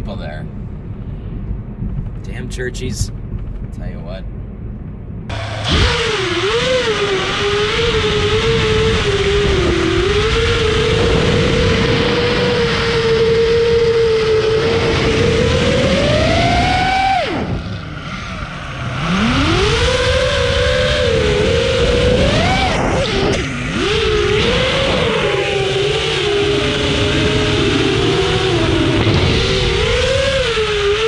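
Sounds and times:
quadcopter motors whining: 5.3s - 31.0s.

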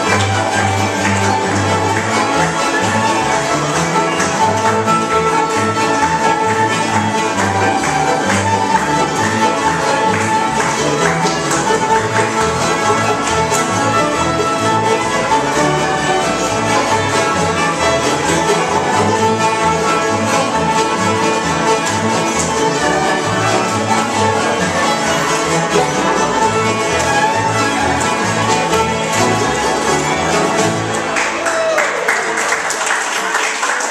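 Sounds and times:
upright bass: 0.0s - 31.1s
fiddle melody: 0.0s - 31.4s
strummed acoustic guitars: 0.0s - 31.4s
mandolin: 0.0s - 32.7s.

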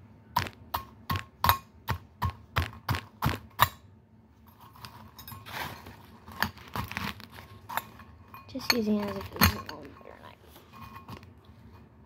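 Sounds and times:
scraping and rustling: 4.4s - 12.0s.

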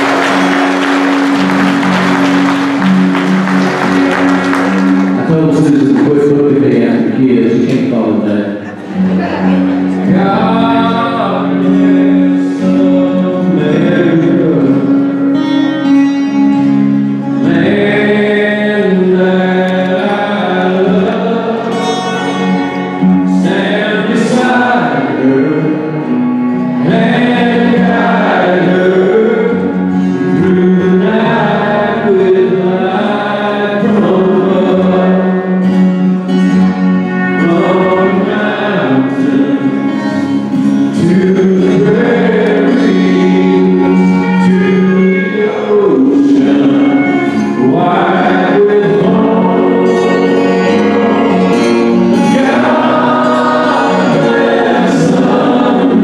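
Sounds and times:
strummed acoustic guitar: 0.0s - 56.0s
man singing into microphone: 5.2s - 8.8s, 9.8s - 15.9s, 17.2s - 36.0s, 36.9s - 56.0s.

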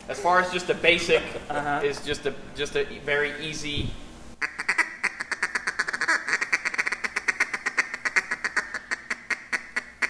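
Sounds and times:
duck call quacking chatter: 4.4s - 10.0s.

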